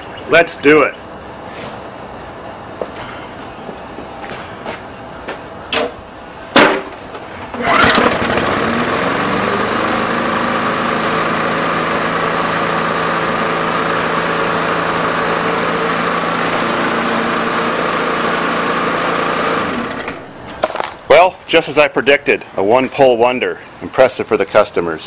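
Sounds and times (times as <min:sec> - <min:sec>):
lawn mower engine running: 0:06.2 - 0:21.1.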